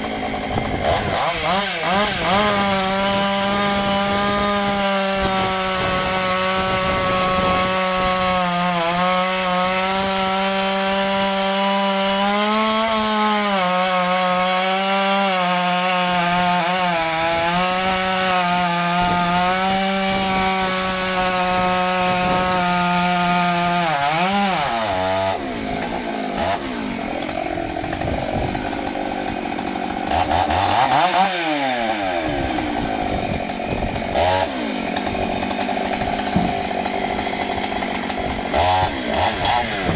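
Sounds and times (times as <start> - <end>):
chainsaw cutting logs: 0.0 - 39.9.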